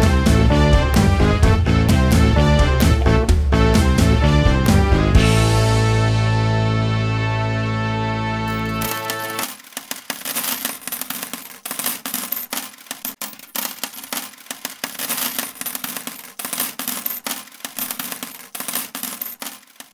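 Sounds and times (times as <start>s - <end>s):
coins jingling: 8.5s - 19.9s.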